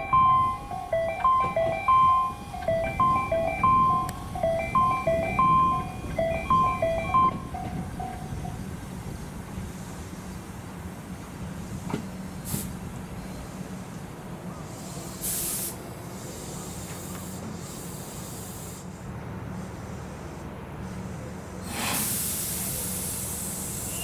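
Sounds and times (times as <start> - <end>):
train compressed air hissing: 11.5 - 24.0.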